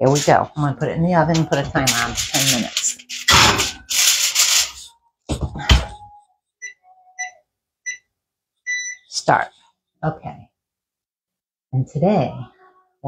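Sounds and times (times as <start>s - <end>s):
foil pan clattering and rustling: 1.3s - 4.9s
short electronic beeps: 6.6s - 8.0s, 8.7s - 9.1s.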